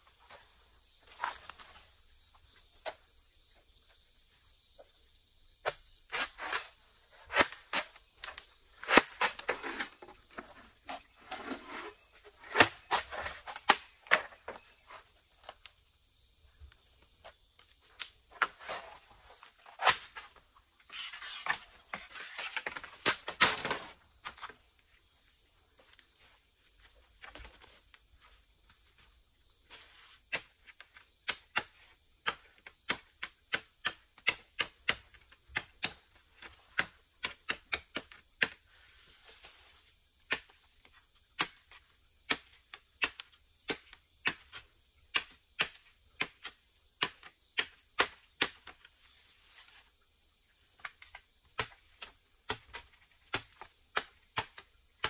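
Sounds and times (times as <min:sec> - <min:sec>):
insect calling: 0:00.0 - 0:55.0.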